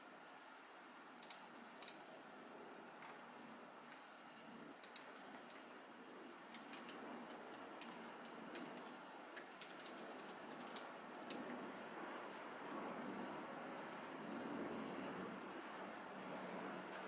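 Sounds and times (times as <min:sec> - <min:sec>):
typing on laptop keyboard: 0:09.6 - 0:11.4.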